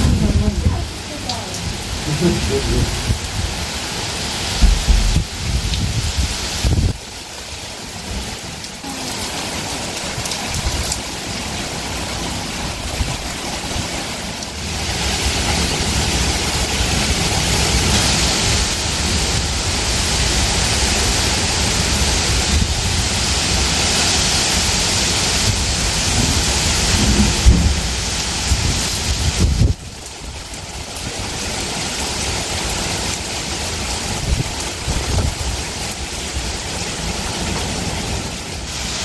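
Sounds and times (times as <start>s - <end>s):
low rumbling: 0.0s - 3.8s, 4.4s - 7.0s
heavy rain pouring on pavement: 0.0s - 39.0s.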